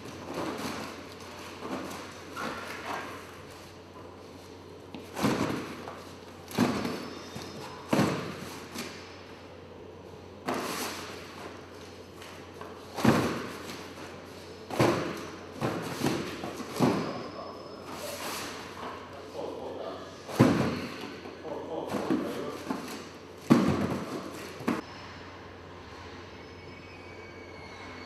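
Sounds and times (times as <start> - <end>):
cardboard boxes thudding on floor: 5.2 - 5.9, 7.9 - 8.5, 21.9 - 24.8.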